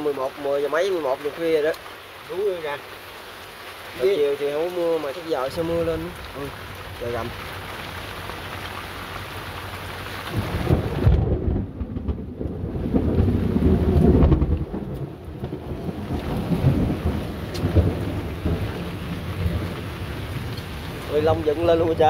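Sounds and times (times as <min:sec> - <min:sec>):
rain hissing: 0:00.0 - 0:22.0
thunder rumbling: 0:10.3 - 0:22.0.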